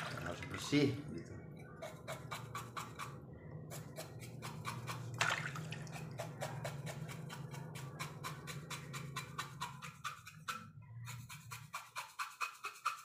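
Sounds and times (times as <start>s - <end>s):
water dripping into a bucket: 0.0s - 1.3s, 5.1s - 6.0s.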